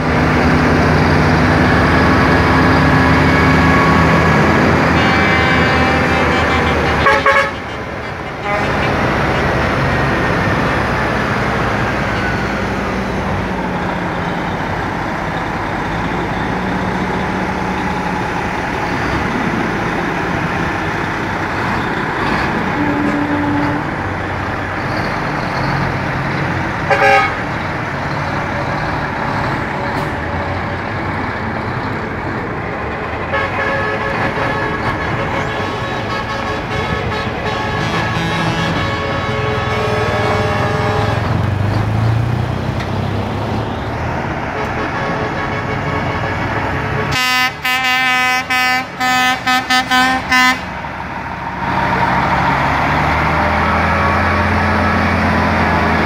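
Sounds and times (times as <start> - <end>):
truck horns: 0.0 - 31.2, 32.8 - 42.5, 43.6 - 56.0
diesel trucks driving past: 0.0 - 56.0.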